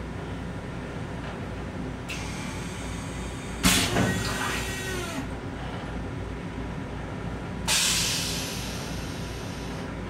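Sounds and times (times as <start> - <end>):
railcar rumble: 0.0 - 10.0
loud hiss of air: 2.1 - 4.9, 7.7 - 9.8.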